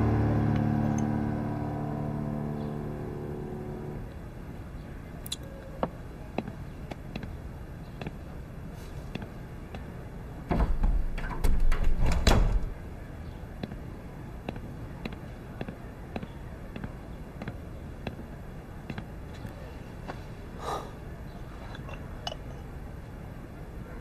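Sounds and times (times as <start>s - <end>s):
wooden doors rattling and knocking: 10.4s - 12.8s
footsteps on wooden floor: 14.5s - 18.2s, 18.9s - 19.1s.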